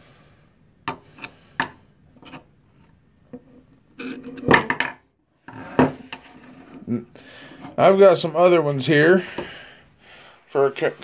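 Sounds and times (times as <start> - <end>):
screwdrivers clattering on table: 3.3 - 6.3.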